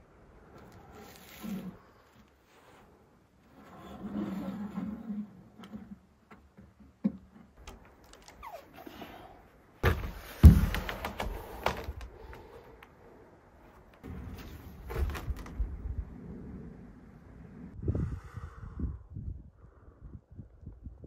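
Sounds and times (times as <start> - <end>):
wooden knocks and thuds on log: 9.8 - 12.1.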